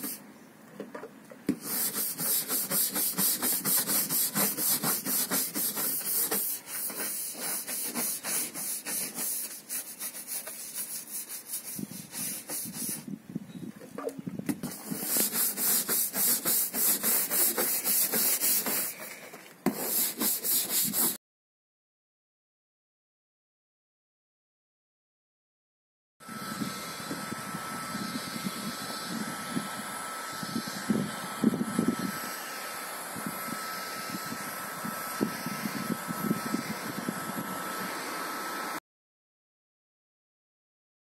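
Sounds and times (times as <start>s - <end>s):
scrub brush scrubbing a roof: 1.5s - 13.1s, 14.6s - 21.2s.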